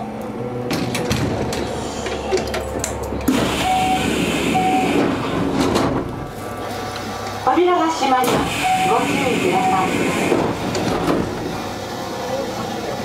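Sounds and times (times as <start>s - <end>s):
train mechanical hum: 0.0s - 13.0s
short beeps: 3.6s - 5.0s, 8.6s - 9.9s.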